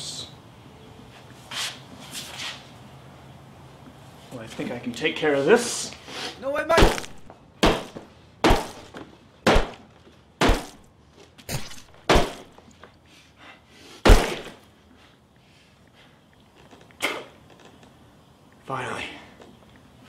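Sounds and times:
heavy crunching blows: 6.7 - 12.7, 14.0 - 14.8.

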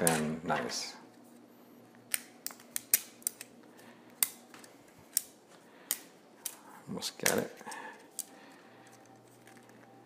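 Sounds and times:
plastic clicks and snaps: 7.2 - 7.5.

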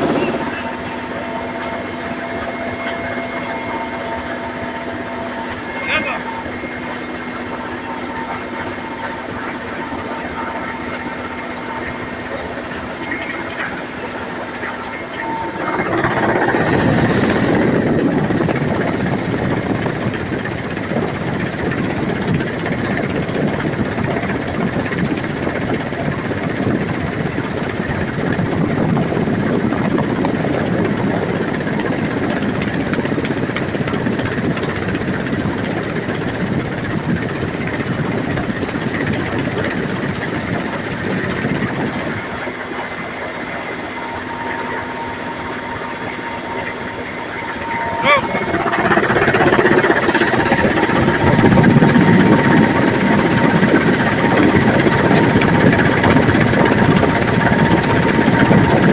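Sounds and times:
helicopter engine and rotor drone: 0.0 - 58.9
rush of wind: 0.0 - 58.9.

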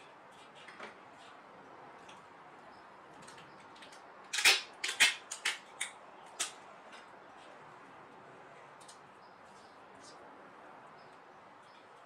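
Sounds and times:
sharp clicks and snaps: 3.2 - 6.6.

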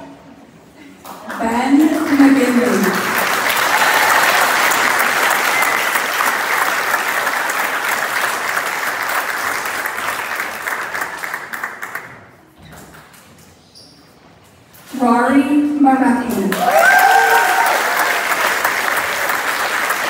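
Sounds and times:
audience clapping: 1.0 - 12.4, 16.5 - 20.0.

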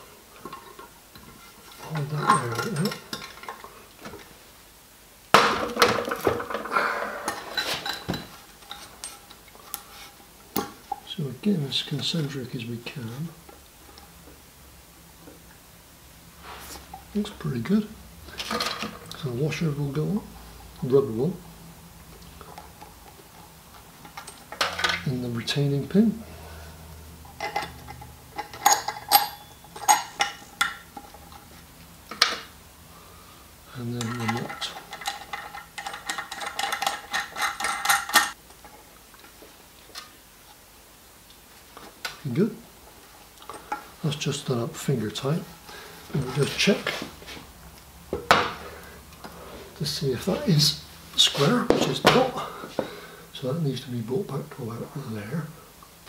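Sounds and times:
metallic clinks of tap fittings: 28.4 - 30.8.

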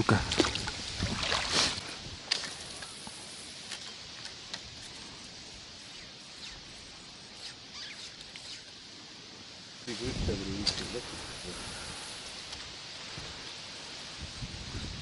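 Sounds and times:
water lapping: 0.0 - 2.9.

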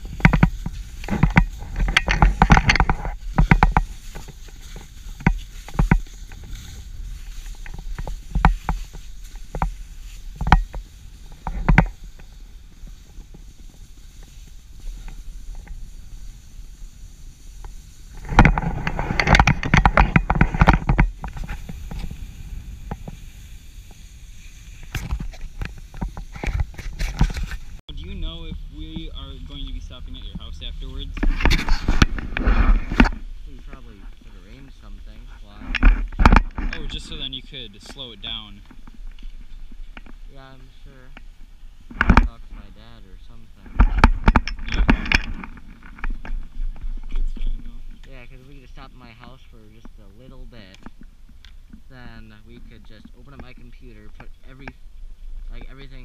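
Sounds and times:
clicks and clatter: 0.0 - 6.7, 18.2 - 22.1, 43.6 - 48.3
skis scraping over snow: 0.0 - 44.1, 44.7 - 50.8
wind rumble on microphone: 0.0 - 56.0.

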